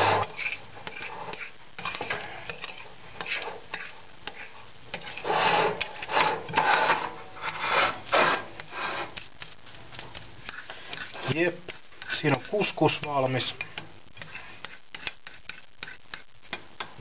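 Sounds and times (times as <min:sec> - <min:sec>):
fork scraping and tapping on plate: 0:00.1 - 0:07.7, 0:08.6 - 0:17.0.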